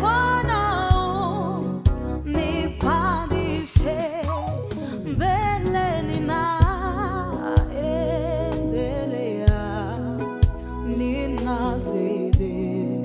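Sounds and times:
woman singing gospel: 0.0s - 13.0s.

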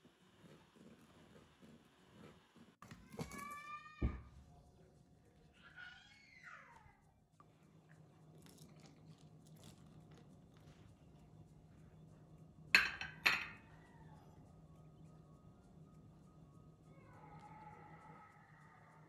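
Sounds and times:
faint steady hum: 0.0s - 19.0s
ceramic dish clinking: 12.8s - 13.6s.

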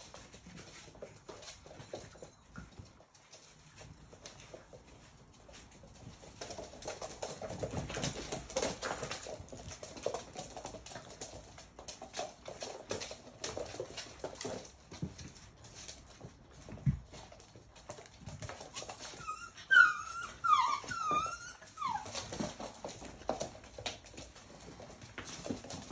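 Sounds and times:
puppy claws clicking on floor: 0.0s - 25.9s
puppies yapping and grunting: 18.5s - 23.2s.

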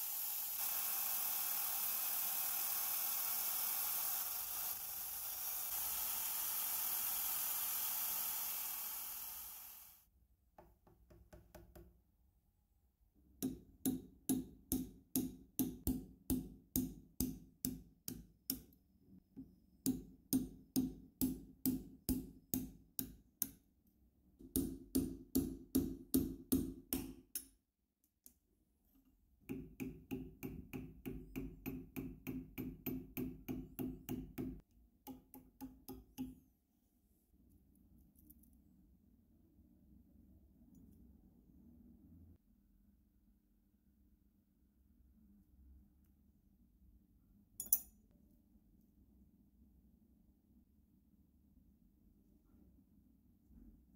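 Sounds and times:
drill bit cutting into steel: 0.0s - 10.0s
hammer tapping steel chisel: 13.4s - 18.8s, 24.4s - 27.6s, 29.5s - 36.4s.

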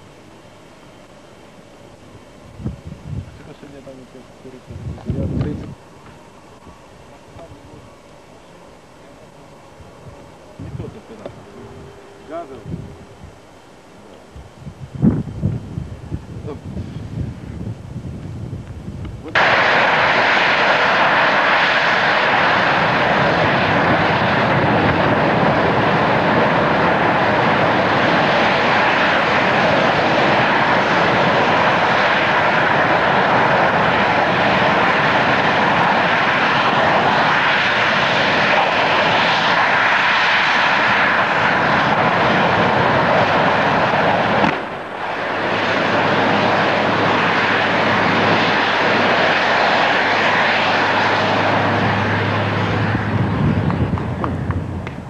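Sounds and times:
low steady hum: 0.0s - 39.6s
gas jet fire roaring: 0.0s - 55.0s.

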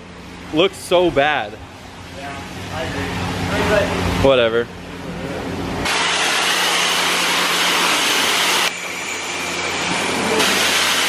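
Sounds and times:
pressure washer spraying water: 5.8s - 11.0s.

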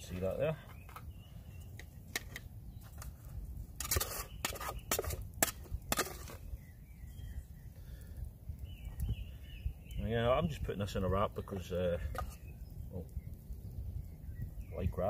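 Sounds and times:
metal spoon scraping metal pot: 3.8s - 6.4s.

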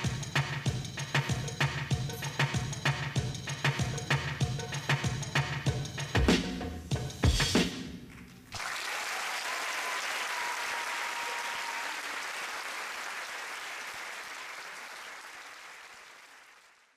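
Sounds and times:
belly-dance music: 0.0s - 7.9s
audience applause: 8.5s - 16.9s.

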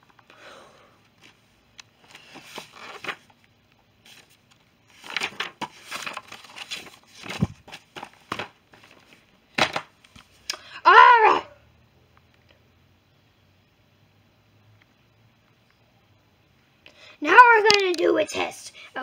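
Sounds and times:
rustling and crinkling handling noise: 1.0s - 10.4s.

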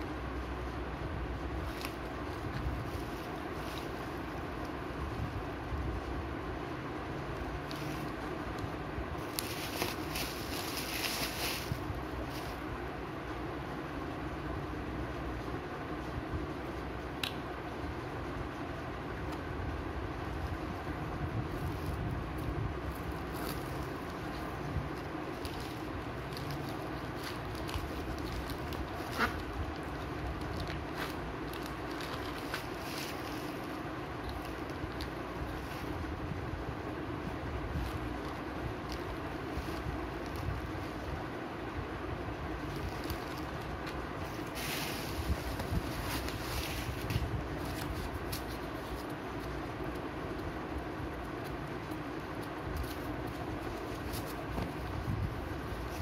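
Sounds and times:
low background rumble: 0.0s - 56.0s
plastic bags rustling and crinkling: 1.6s - 4.8s, 9.2s - 12.6s, 21.5s - 41.2s, 42.5s - 50.4s, 51.3s - 56.0s
cardboard boxes rustling: 9.2s - 12.6s, 42.6s - 49.6s, 52.8s - 56.0s.

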